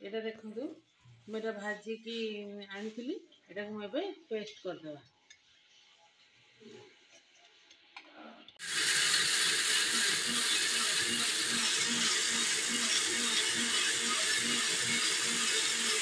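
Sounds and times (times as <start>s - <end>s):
mixer grinder running: 8.6s - 16.0s.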